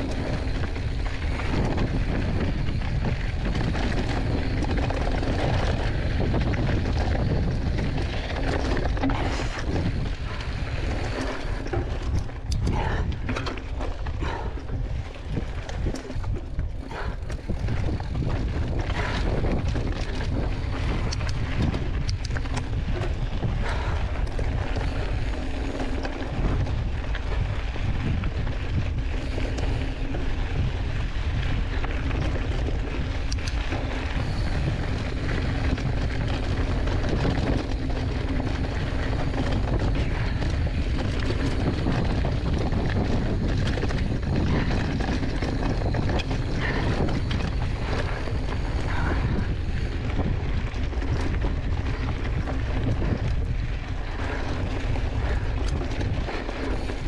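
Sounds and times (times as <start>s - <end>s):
bicycle frame rattling: 0.0s - 57.0s
tyres rolling on gravel: 0.0s - 57.0s
wind buffeting microphone: 0.0s - 57.0s.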